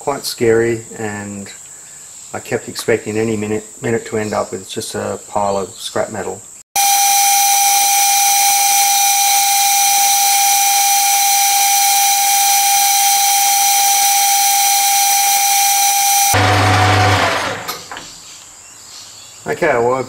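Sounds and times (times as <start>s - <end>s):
metal lathe whining: 6.8s - 17.9s.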